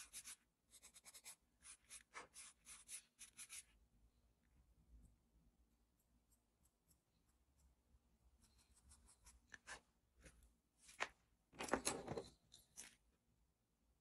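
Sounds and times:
charcoal pencil scratching paper: 0.0s - 3.8s, 8.4s - 10.0s
drawing tools clattering: 11.5s - 13.0s.

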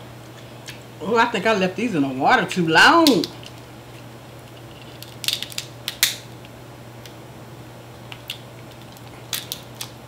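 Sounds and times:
crab legs cracking: 4.4s - 7.2s, 8.1s - 10.0s.

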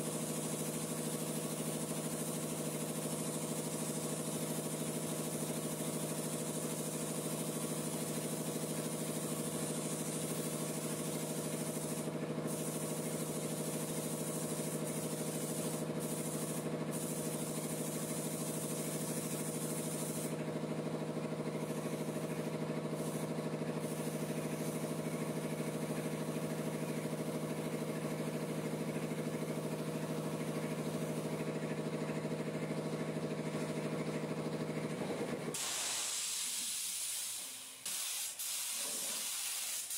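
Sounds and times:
spray gun air hiss: 0.0s - 20.4s, 21.5s - 27.8s, 35.5s - 39.9s
motor running steadily: 0.0s - 35.6s.

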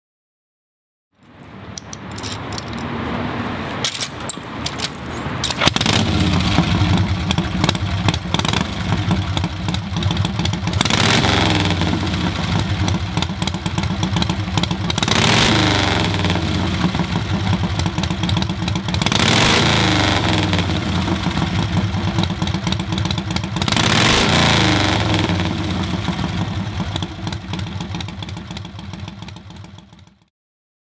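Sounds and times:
motorcycle engine revving: 3.9s - 30.2s.

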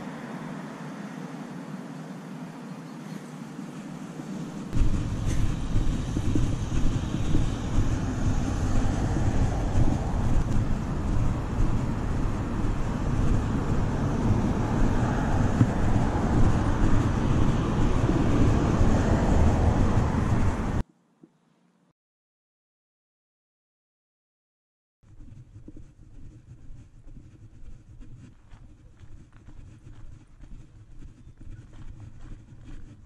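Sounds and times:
wavering low rumble: 3.7s - 20.8s, 25.1s - 33.0s
rushing hiss: 4.2s - 16.9s.

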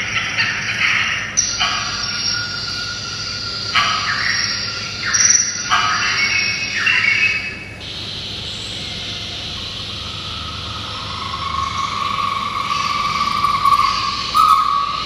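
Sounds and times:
bird cries over loudspeaker: 8.9s - 15.0s.

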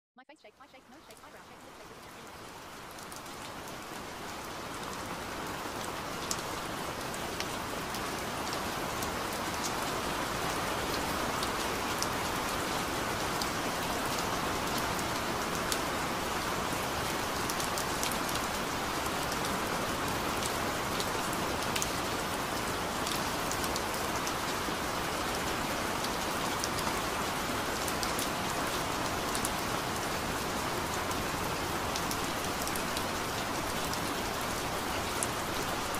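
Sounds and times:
rain falling: 0.6s - 35.9s
sharp raindrop ticks: 17.0s - 22.0s.

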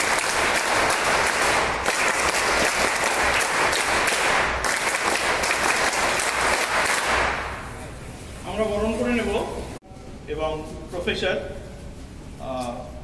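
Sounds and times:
audience applause: 0.0s - 7.5s.

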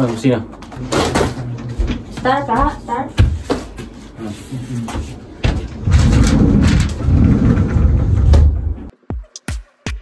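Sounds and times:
wooden panel rumbling: 5.4s - 8.9s.

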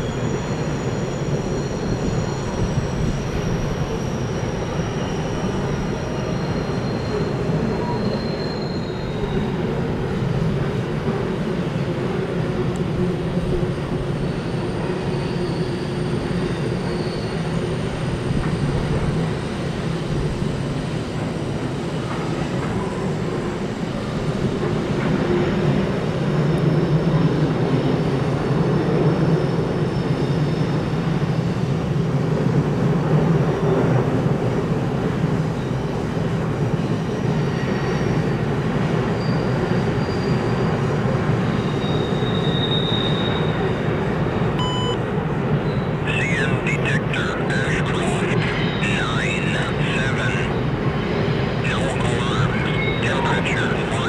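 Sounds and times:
faint high squeal: 0.0s - 9.9s, 13.7s - 18.7s, 39.1s - 43.9s.

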